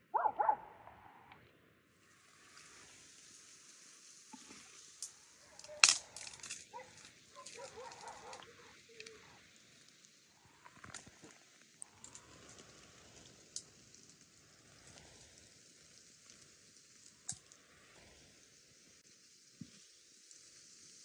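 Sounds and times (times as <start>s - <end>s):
steady hiss: 1.8s - 21.0s
leaves rustling: 2.0s - 21.0s
twigs cracking: 4.4s - 14.0s
stick snapping: 5.5s - 9.2s.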